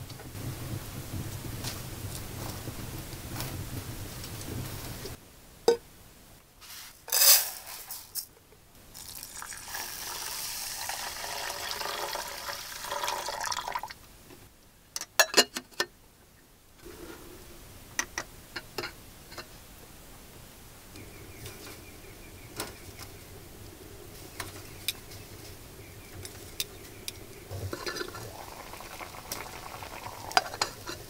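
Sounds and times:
wood fire crackling: 0.0 - 5.2, 8.8 - 13.9, 20.8 - 31.0
dry grains rattling: 6.7 - 8.3, 8.9 - 13.5
water pouring into metal pot: 8.9 - 14.0, 27.5 - 31.0.

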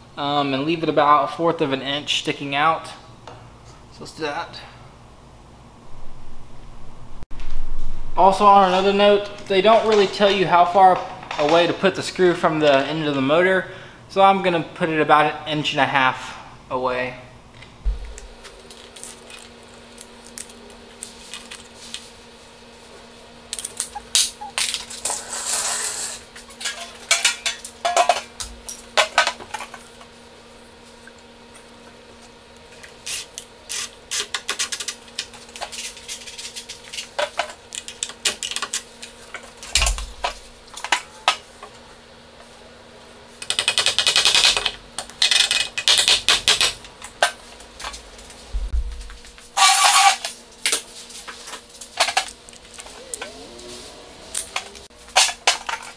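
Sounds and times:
dull thud: 17.9 - 18.4, 48.6 - 49.2.

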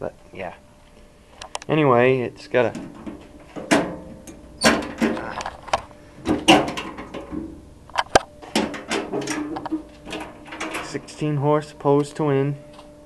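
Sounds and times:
sheet metal panels rattling: 2.6 - 11.3.

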